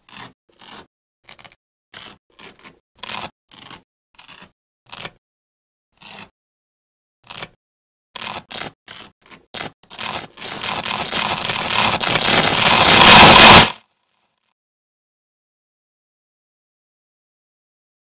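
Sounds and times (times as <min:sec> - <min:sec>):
velcro ripping apart: 0:08.2 - 0:13.8.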